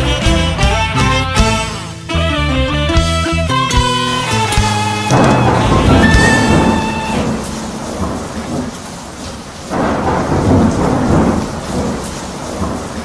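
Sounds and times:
rain hiss: 4.0 - 13.0
thunder rumbling: 4.6 - 13.0.

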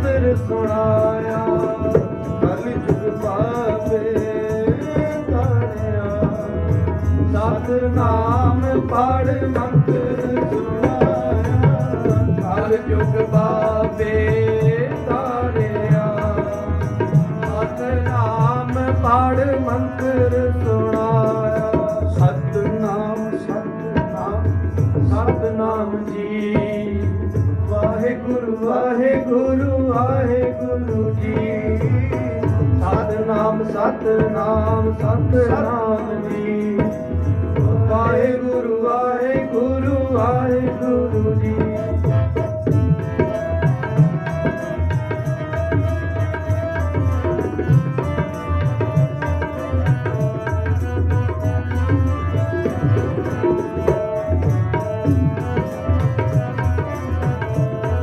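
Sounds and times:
harmonium chords: 0.0 - 58.0
man singing: 0.0 - 58.0
tabla drumming: 0.0 - 58.0.

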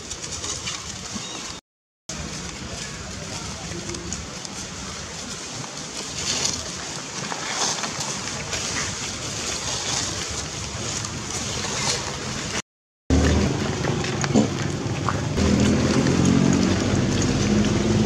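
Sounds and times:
low motor hum: 12.4 - 18.0.

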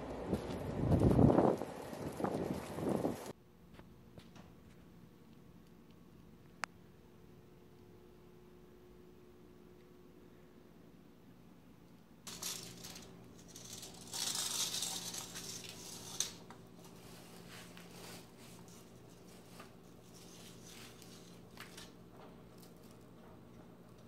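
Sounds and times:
faint steady hum: 0.0 - 24.0
scraping and rustling handling: 12.3 - 23.2.

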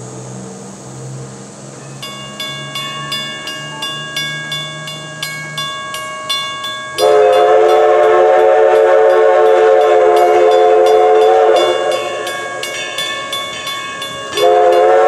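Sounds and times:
railroad crossing bell dinging: 1.7 - 15.0
steam locomotive whistle: 6.9 - 15.0.

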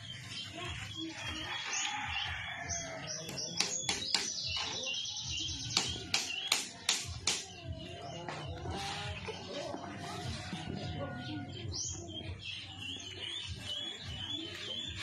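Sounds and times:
birds chirping: 0.0 - 15.0
sharp knocks: 3.6 - 4.4, 5.8 - 7.5.

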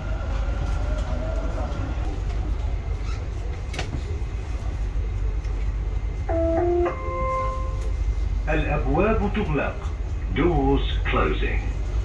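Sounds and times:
train interior rumble: 0.0 - 12.0
two-note chime: 6.3 - 7.9.

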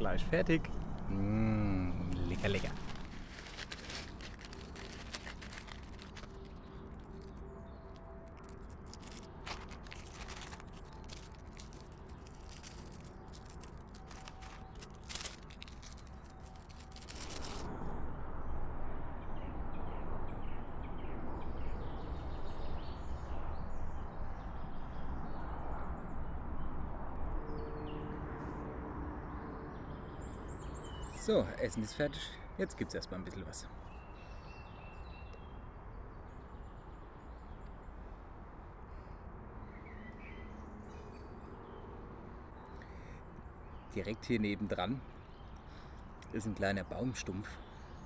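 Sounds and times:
woodland background: 0.0 - 18.1, 29.7 - 48.0
food packet rustling: 2.2 - 7.4, 8.2 - 17.7.

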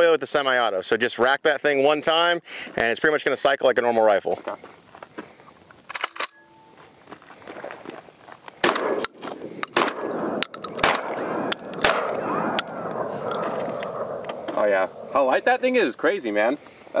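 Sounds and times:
shotgun bolt racking: 5.9 - 6.4, 8.6 - 12.0
shotgun shots: 8.6 - 15.1.

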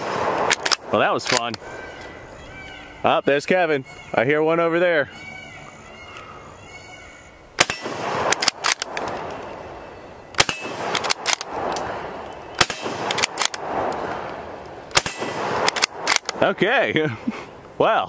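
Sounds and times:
rifle shots with rolling echo: 0.0 - 2.0, 7.6 - 16.8
small sharp cracks: 0.0 - 2.1, 7.6 - 9.6, 10.3 - 16.4.

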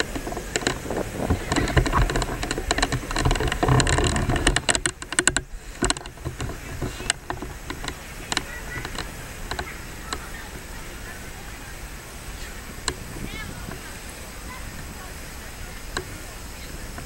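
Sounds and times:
sharp clicks and rattles: 0.0 - 11.2, 15.8 - 16.2
wind buffeting microphone: 0.0 - 17.0
faint crowd voices: 5.5 - 17.0.

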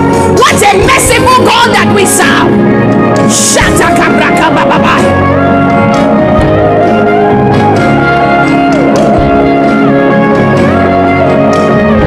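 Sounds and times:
instrumental music with held chords: 0.0 - 12.0.

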